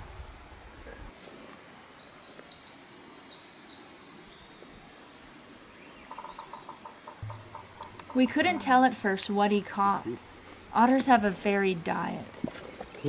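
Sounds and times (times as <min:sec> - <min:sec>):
small bird singing: 0:01.2 - 0:09.6.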